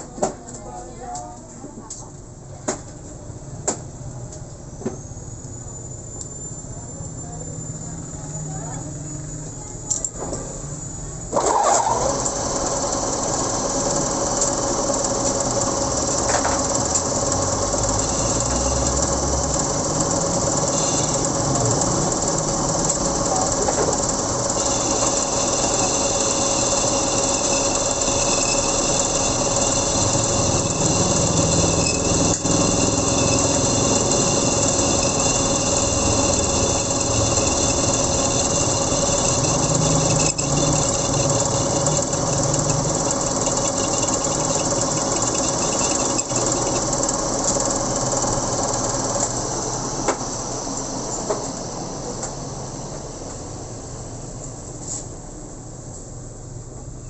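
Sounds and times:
metal lathe running: 11.4 - 54.2
high cutting squeal: 17.2 - 22.4, 24.4 - 47.1.

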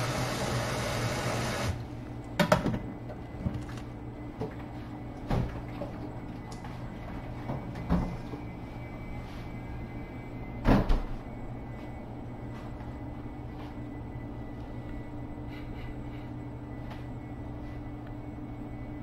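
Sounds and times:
kitchen tap running: 0.0 - 1.8.

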